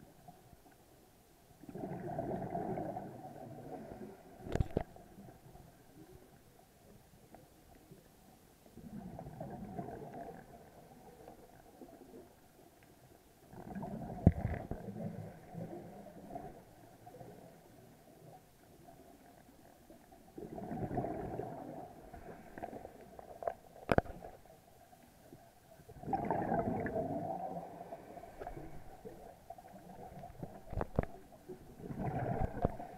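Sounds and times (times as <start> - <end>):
gurgling underwater bubbles: 1.6 - 6.2, 8.8 - 12.3, 13.4 - 24.5, 25.8 - 32.9.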